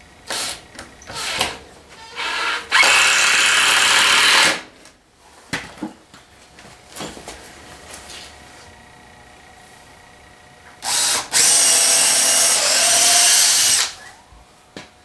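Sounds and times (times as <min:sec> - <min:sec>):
power drill drilling into wood: 0:02.2 - 0:04.6, 0:10.8 - 0:14.0.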